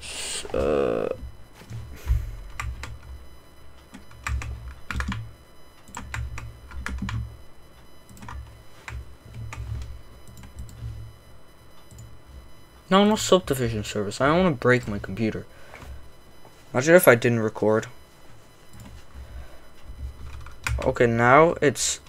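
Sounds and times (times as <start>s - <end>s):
keyboard keys clicking: 3.9s - 5.2s, 5.8s - 7.2s.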